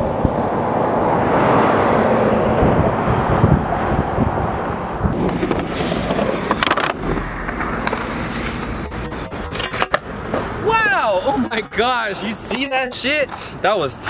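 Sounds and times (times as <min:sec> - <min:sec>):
skateboard wheels rolling on asphalt: 0:00.0 - 0:10.7
skateboard deck clacking on concrete: 0:05.2 - 0:10.5.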